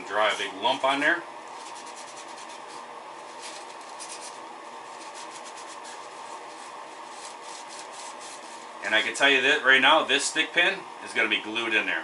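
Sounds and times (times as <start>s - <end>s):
paper towel rubbing on wood: 0.0s - 9.3s
steady background hum: 0.0s - 12.0s.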